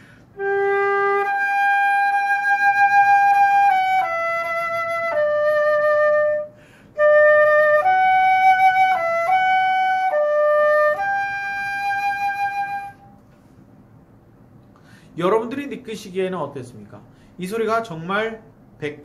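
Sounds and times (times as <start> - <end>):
flute playing slow melody: 0.3 - 13.2
player breathing in: 6.6 - 7.0, 14.8 - 15.2.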